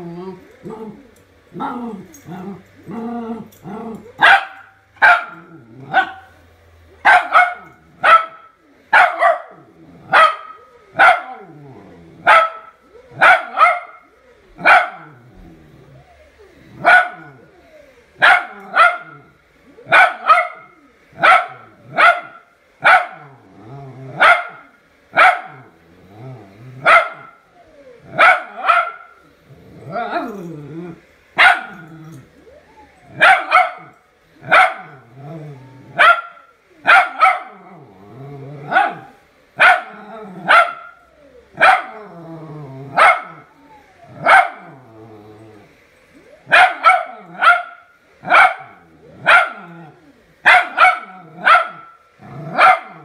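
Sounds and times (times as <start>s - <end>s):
dog growling: 0.0s - 4.2s, 5.3s - 6.2s, 9.5s - 13.6s, 15.0s - 19.9s, 23.2s - 24.7s, 25.5s - 33.3s, 34.4s - 47.5s, 48.2s - 53.0s
dog barking sharply: 7.0s - 9.5s, 50.5s - 51.9s.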